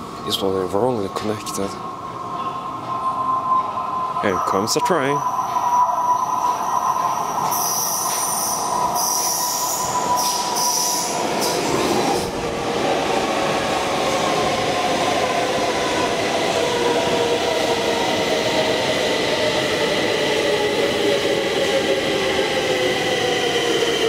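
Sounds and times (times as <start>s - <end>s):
train running rush: 0.0s - 24.0s
train wheels squealing: 2.4s - 11.8s.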